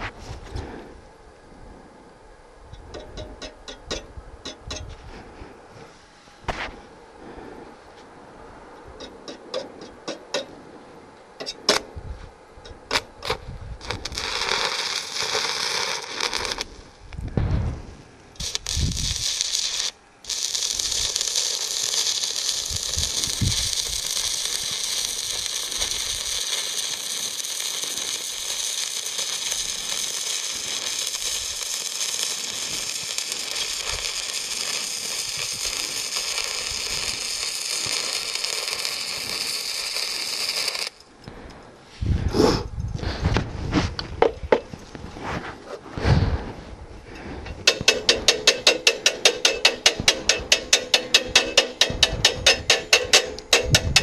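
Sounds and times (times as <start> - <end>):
welding arc crackling hiss: 12.9 - 17.4, 18.3 - 41.0, 47.6 - 54.0
low thumps: 17.2 - 18.0.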